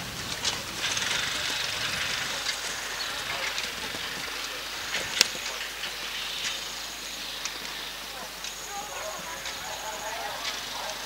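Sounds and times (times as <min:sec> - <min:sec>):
horse hoofbeats on grass: 0:00.0 - 0:06.7
outdoor arena hiss: 0:00.0 - 0:11.0.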